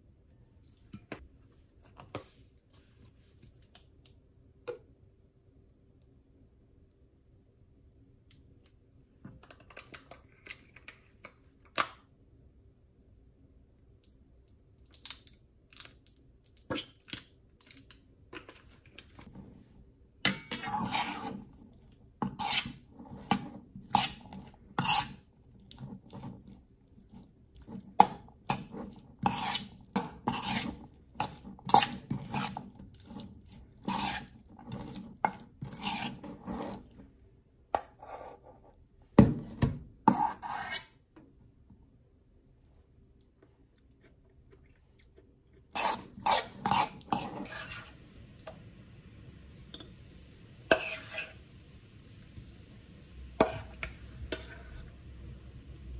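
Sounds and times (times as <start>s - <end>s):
metal spoon scraping steel bowl: 20.3s - 21.6s, 22.2s - 26.4s, 27.6s - 37.0s, 40.1s - 41.0s, 45.7s - 48.0s, 50.7s - 51.4s, 53.4s - 55.0s.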